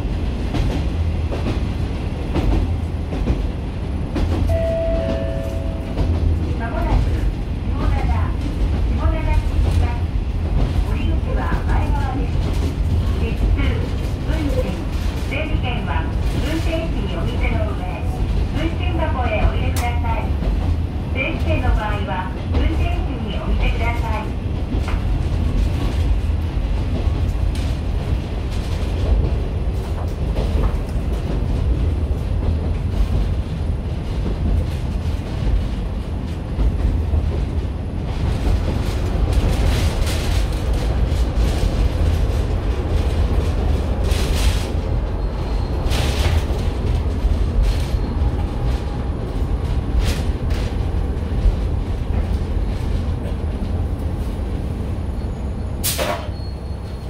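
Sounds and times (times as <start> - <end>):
train rumbling on rails: 0.0 - 57.0.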